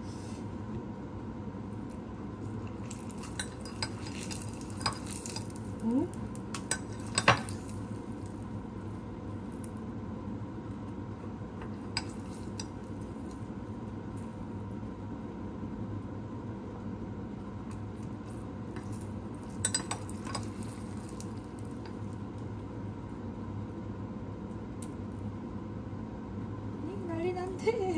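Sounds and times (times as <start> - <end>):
metal tongs scraping in mug: 18.8 - 20.7.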